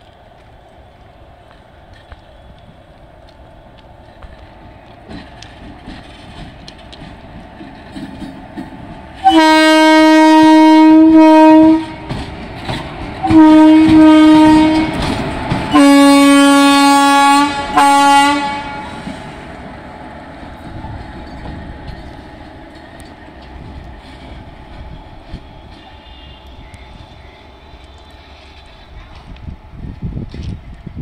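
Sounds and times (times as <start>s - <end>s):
train wheels clattering on track: 0.0s - 31.0s
locomotive horn blasts: 9.2s - 12.1s, 13.2s - 15.0s, 15.7s - 19.0s, 25.9s - 27.5s.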